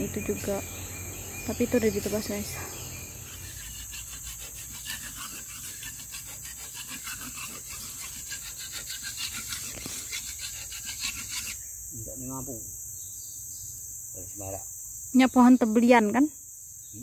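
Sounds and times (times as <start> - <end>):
high insect drone: 0.0 - 17.0
hand tool rasping on wood: 2.0 - 11.6.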